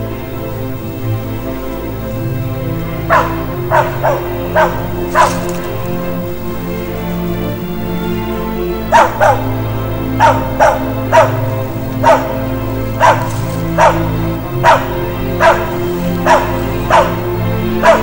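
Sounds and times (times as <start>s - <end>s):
music with sustained tones: 0.0s - 18.0s
dog barking: 3.1s - 6.1s, 8.9s - 18.0s.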